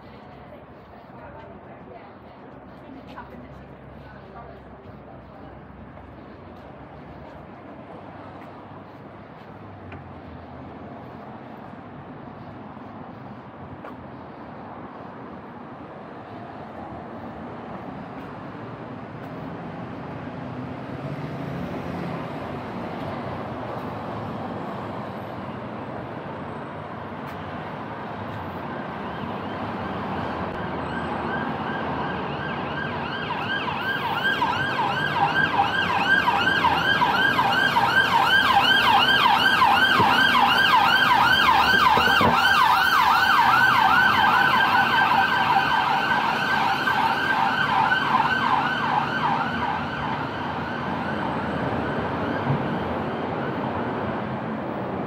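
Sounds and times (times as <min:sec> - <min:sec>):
street traffic: 0:00.0 - 0:55.0
emergency siren yelping: 0:28.6 - 0:54.2.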